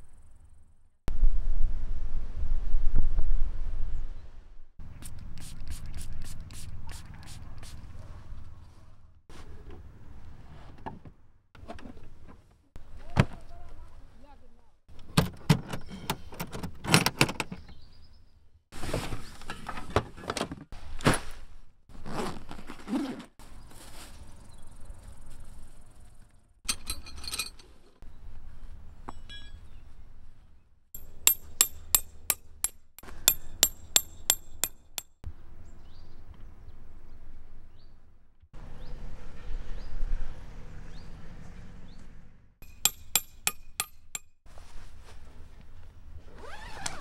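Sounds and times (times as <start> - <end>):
metal or glass items clinking: 26.7 - 27.7, 31.0 - 32.4
sharp ringing taps: 31.0 - 35.2, 42.6 - 44.3.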